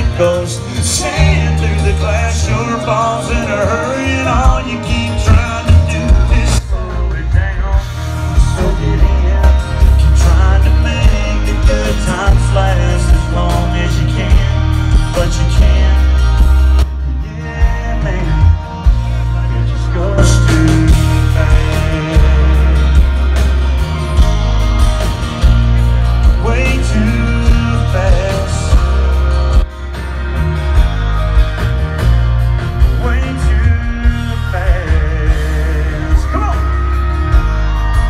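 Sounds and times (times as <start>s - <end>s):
person singing: 0.0s - 24.2s, 32.8s - 38.0s
live country-rock band: 0.0s - 38.0s.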